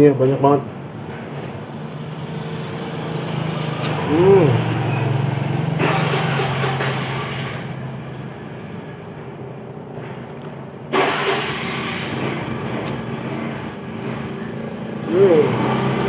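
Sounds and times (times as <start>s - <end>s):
rush of engine noise: 1.0s - 16.0s
small engine running: 1.6s - 7.8s, 11.0s - 16.0s.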